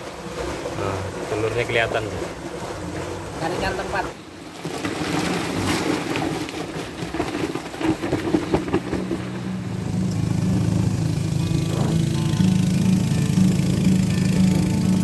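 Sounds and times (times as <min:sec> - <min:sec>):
prawns and ice rattling in cooler: 0:04.2 - 0:09.4
steady low hum: 0:08.7 - 0:15.0.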